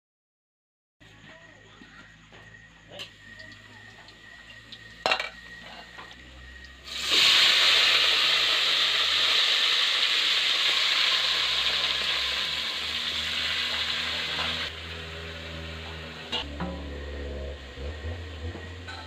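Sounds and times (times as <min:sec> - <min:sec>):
chicken sizzling in hot oil: 0:03.0 - 0:16.5.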